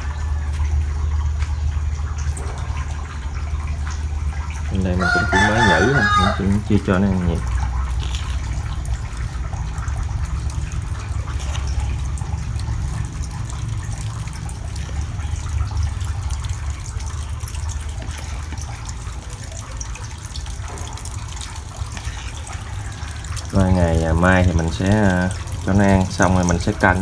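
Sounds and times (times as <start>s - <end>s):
water gushing into tank: 0.0s - 27.0s.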